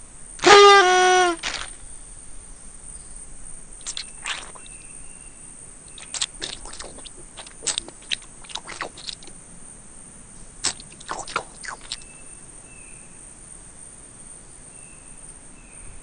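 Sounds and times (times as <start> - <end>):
nut crunching being chewed: 3.8 - 4.8, 5.9 - 9.3, 10.6 - 12.0
faint chirp: 3.8 - 9.2, 10.4 - 13.3.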